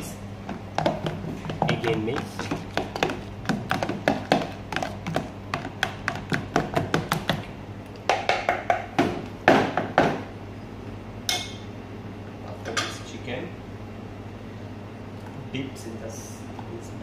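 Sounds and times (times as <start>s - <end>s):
utensil tapping plastic tub: 0.5s - 7.5s.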